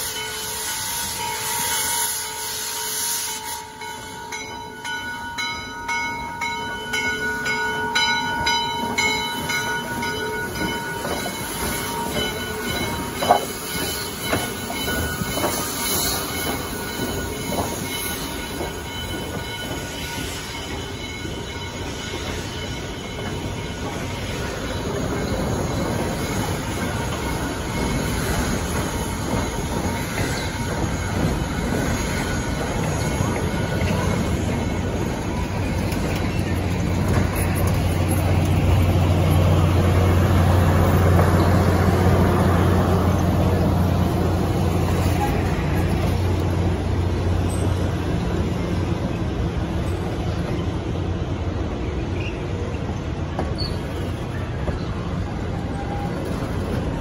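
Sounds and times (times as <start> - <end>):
steam hissing: 0.0 - 4.3, 9.2 - 48.9
steam locomotive rolling: 0.0 - 57.0.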